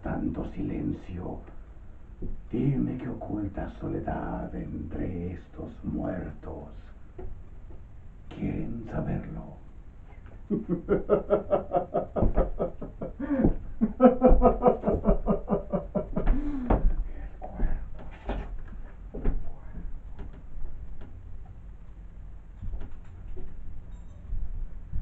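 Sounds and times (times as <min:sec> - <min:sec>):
man laughing theatrically: 0:10.4 - 0:17.0.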